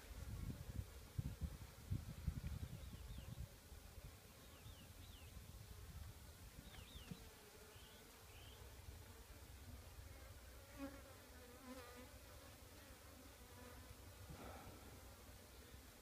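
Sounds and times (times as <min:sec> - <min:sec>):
honey bees buzzing: 0:06.6 - 0:16.0.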